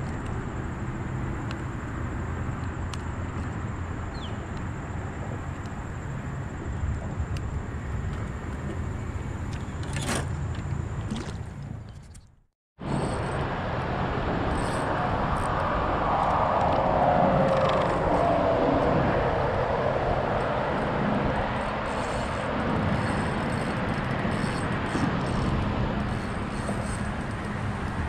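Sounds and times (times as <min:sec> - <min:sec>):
river current rushing: 0:12.8 - 0:28.0
vehicle passing: 0:12.8 - 0:28.0.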